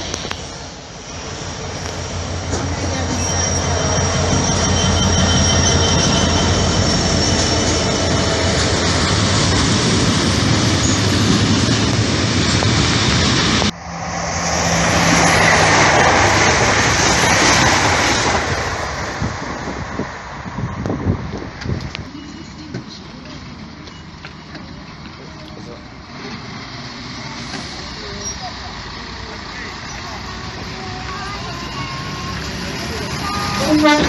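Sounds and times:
diesel locomotive engine: 0.0s - 34.0s
train rushing past: 0.0s - 34.0s
faint high squeal: 3.1s - 7.8s.

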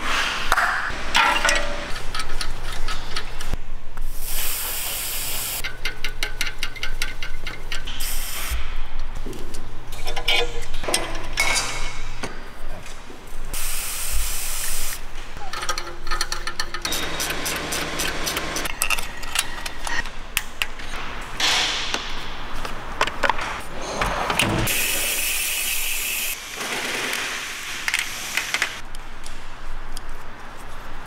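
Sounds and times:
spray can hiss: 4.1s - 5.6s, 13.6s - 15.0s
metal tools clinking: 15.5s - 20.1s.

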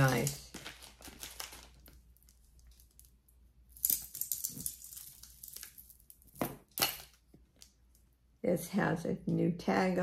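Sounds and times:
plastic bags rustling: 0.0s - 2.6s.

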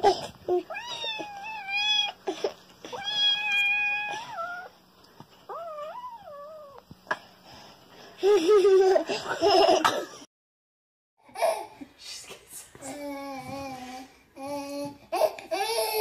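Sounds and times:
kitten meowing: 2.9s - 4.7s.

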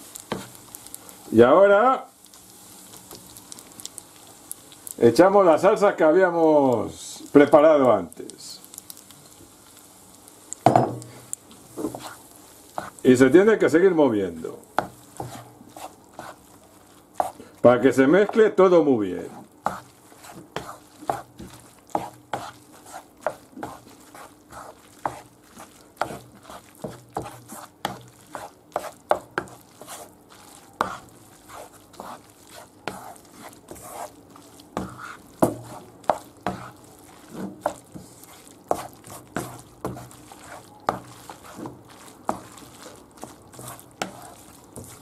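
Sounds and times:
spaghetti stirred in a pan: 0.0s - 45.0s
wooden spoon tapping a pan: 10.6s - 11.1s, 14.8s - 15.4s, 28.8s - 29.6s, 34.8s - 36.7s.

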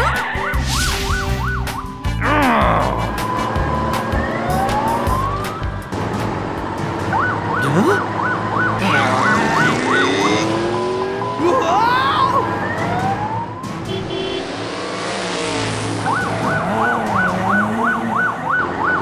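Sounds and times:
police siren wail: 0.0s - 6.0s, 6.9s - 13.9s, 15.6s - 19.0s
background music: 0.0s - 14.5s.

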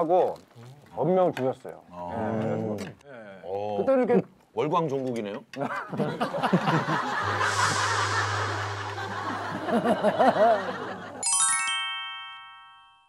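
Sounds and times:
people laughing: 5.6s - 11.2s
low music drone: 7.0s - 11.2s
shimmering chime: 7.1s - 13.0s.

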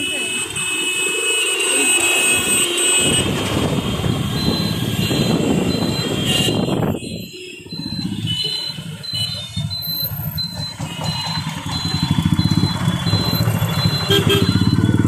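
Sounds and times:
scooter engine drone: 0.0s - 15.0s
high electronic beep: 4.3s - 15.0s.

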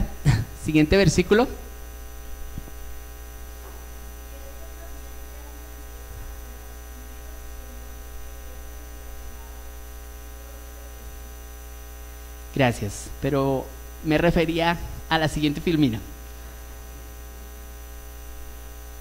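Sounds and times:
electrical mains hum: 0.0s - 19.0s
faint distant voice: 3.7s - 11.2s.

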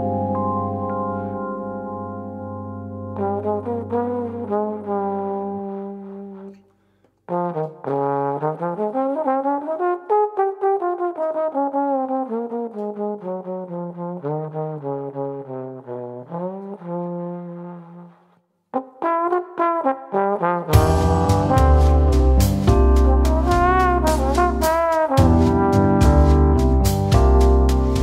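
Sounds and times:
trombone melody: 0.0s - 6.6s, 7.3s - 28.0s
backing music with bass and percussion: 20.8s - 28.0s.

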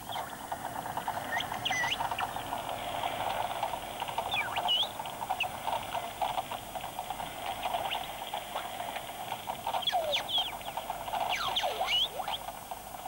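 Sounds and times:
dolphin clicks crackling: 1.1s - 12.8s
dolphin squeaky whistles: 1.3s - 2.0s, 4.3s - 4.9s, 9.8s - 10.6s, 11.2s - 12.5s.

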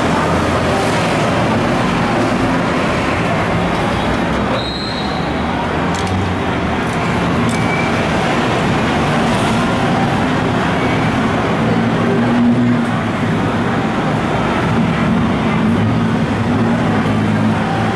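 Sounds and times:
passing vehicles: 0.0s - 17.9s.

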